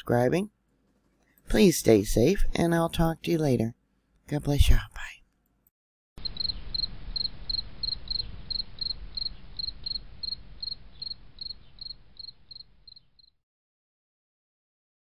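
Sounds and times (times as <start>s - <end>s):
low steady rumble: 6.2s - 12.9s
insect chirping: 6.2s - 13.4s.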